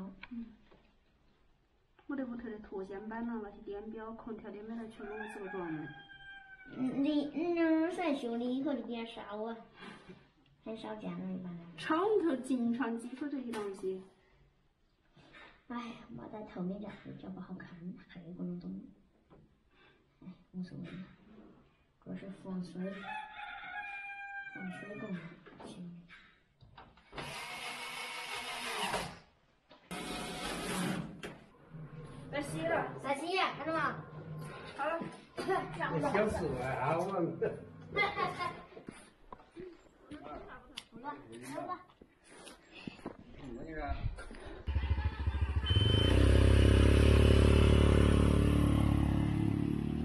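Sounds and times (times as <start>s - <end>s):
small vehicle engine chugging: 44.7s - 50.0s.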